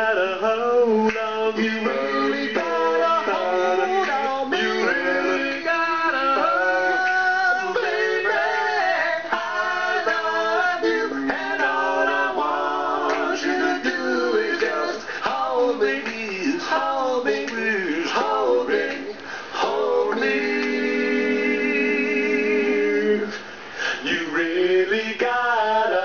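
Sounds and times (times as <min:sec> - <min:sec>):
man singing long held notes: 0:00.0 - 0:07.8.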